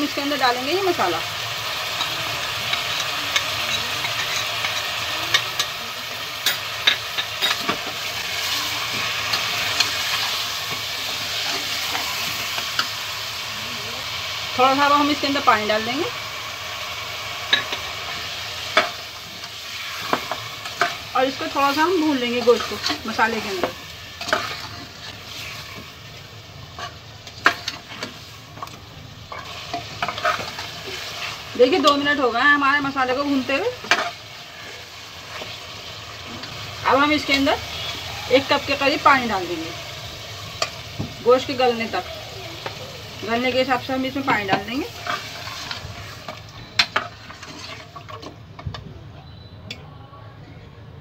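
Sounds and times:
meat sizzling in hot oil: 0.0s - 48.4s
ladle scraping and clinking on pot: 22.4s - 25.9s, 44.9s - 48.4s.

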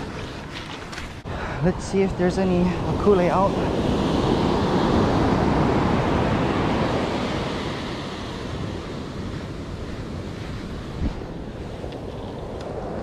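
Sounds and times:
ocean surf rushing: 1.2s - 13.0s.

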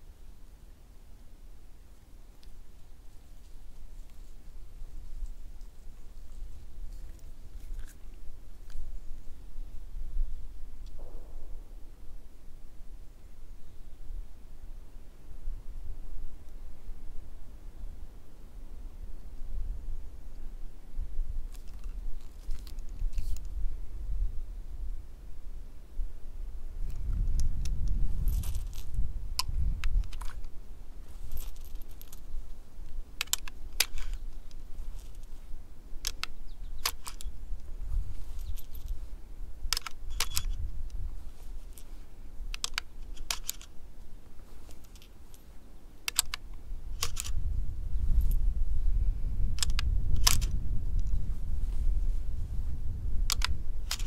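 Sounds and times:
wind rumble on microphone: 13.7s - 43.2s, 46.5s - 54.0s
metallic clicks of cartridges loading: 21.5s - 23.5s, 26.9s - 30.6s, 31.2s - 35.4s, 36.0s - 37.4s, 38.2s - 39.0s, 39.7s - 41.0s, 42.5s - 43.8s, 44.6s - 47.4s, 49.5s - 51.2s, 53.2s - 54.0s.

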